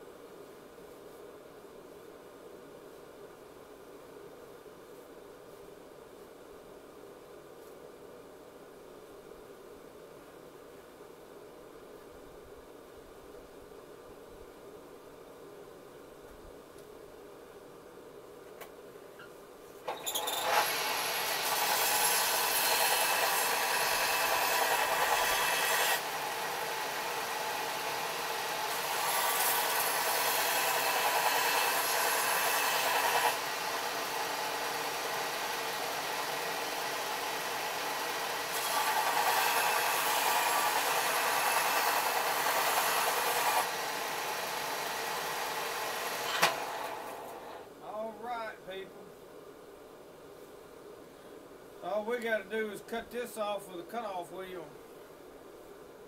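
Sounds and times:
power tool grinding steel: 0:19.9 - 0:47.5.

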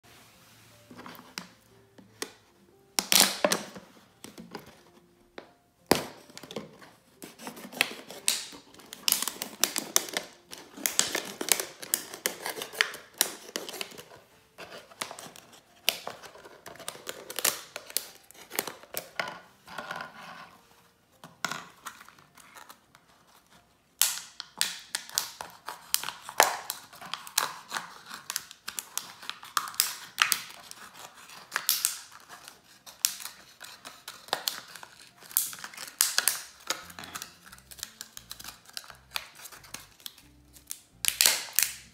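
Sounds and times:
knife cutting plastic bottle: 0:05.9 - 0:20.4.

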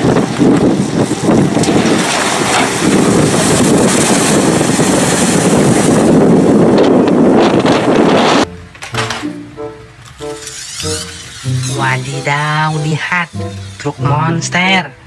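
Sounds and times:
splashing water rushing: 0:00.0 - 0:08.1
wind buffeting microphone: 0:00.0 - 0:08.6.

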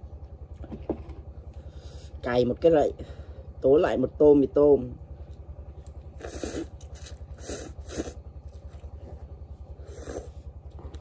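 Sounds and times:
low pulsing hum: 0:00.0 - 0:11.0
person slurping noodles: 0:06.2 - 0:08.2, 0:09.8 - 0:10.5.

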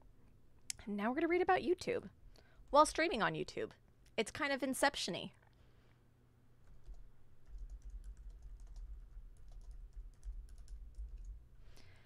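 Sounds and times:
typing on computer keyboard: 0:06.6 - 0:11.4.

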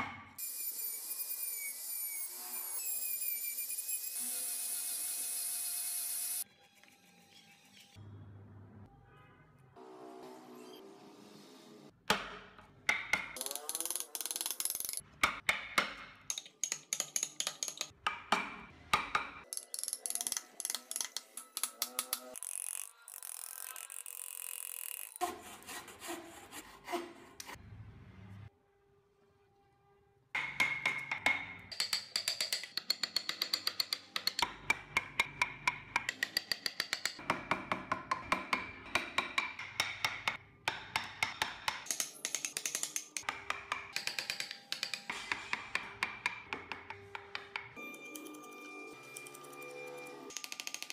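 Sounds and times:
mallet tapping wood chisel: 0:12.0 - 0:22.4, 0:30.4 - 0:47.8.

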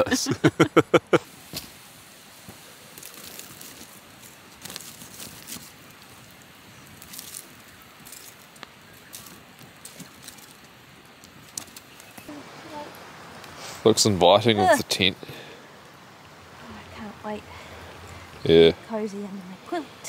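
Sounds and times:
campfire crackling and popping: 0:00.0 - 0:20.0
stick stirring fire: 0:00.9 - 0:12.3.

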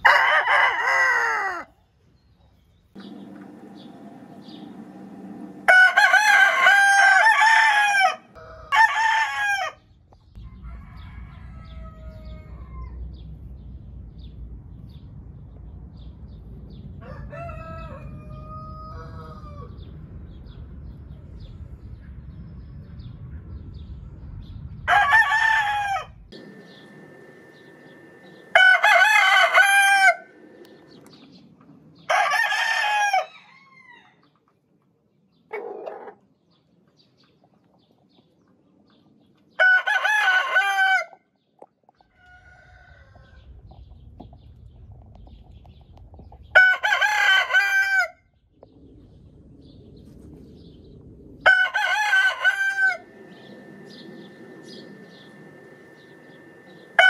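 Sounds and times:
roosters crowing: 0:00.0 - 0:01.8, 0:03.0 - 0:13.0, 0:16.9 - 0:20.0, 0:24.9 - 0:31.1, 0:32.0 - 0:34.3, 0:39.6 - 0:41.2, 0:42.1 - 0:43.6, 0:46.5 - 0:48.2, 0:51.4 - 0:57.0.

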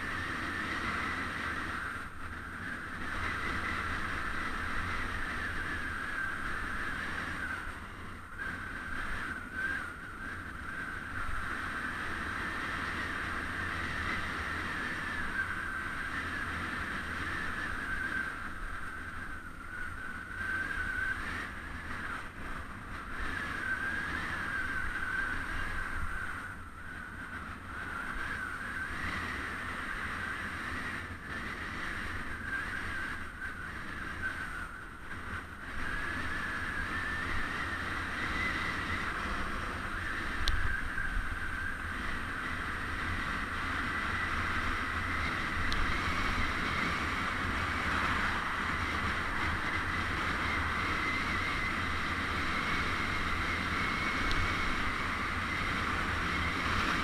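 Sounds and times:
low rumble of road noise: 0:00.0 - 0:57.0
wind rushing over microphone: 0:00.0 - 0:57.0.

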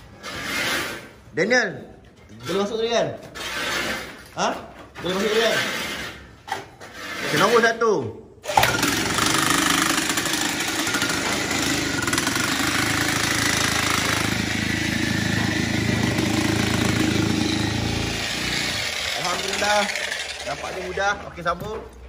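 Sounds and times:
electric hammer driving rod: 0:08.5 - 0:21.2.

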